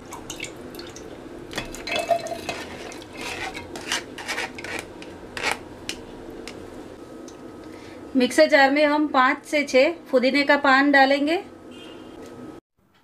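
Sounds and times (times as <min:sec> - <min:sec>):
metal strainer scraping a jar: 0:02.3 - 0:05.6.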